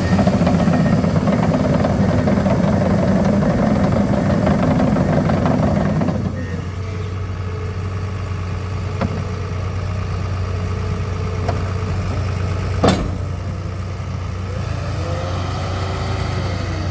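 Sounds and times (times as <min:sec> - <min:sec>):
bulldozer diesel engine running: 0:00.0 - 0:16.9
metal knocks from machine: 0:12.8 - 0:13.3.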